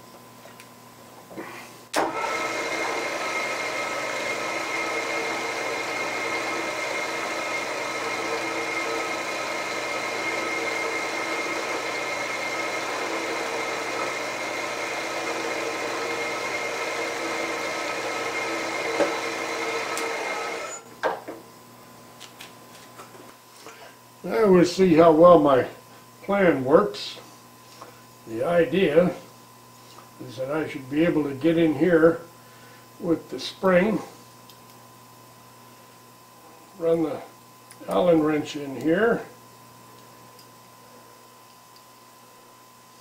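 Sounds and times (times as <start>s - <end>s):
milling machine spindle running: 2.0s - 20.8s
drill boring into aluminum: 2.0s - 20.9s.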